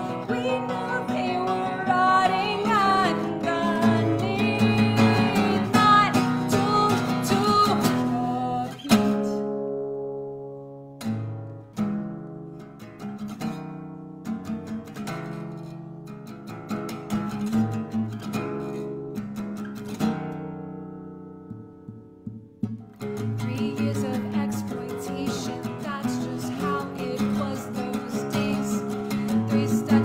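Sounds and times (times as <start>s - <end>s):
woman singing: 0.0s - 9.7s, 23.1s - 30.0s
strummed acoustic guitar: 0.0s - 30.0s.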